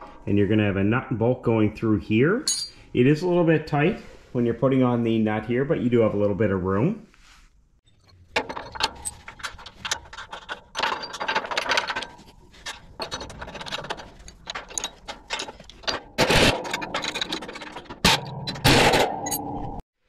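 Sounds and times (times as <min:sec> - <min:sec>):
metal clicks and scrapes of bolt: 0:07.9 - 0:19.7
metal clatter: 0:07.9 - 0:19.8.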